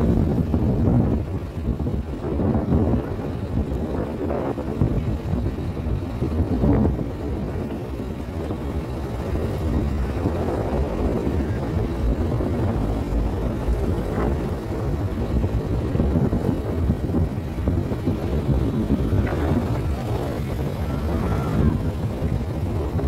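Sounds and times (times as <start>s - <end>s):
vehicle engine rumble: 0.0s - 23.0s.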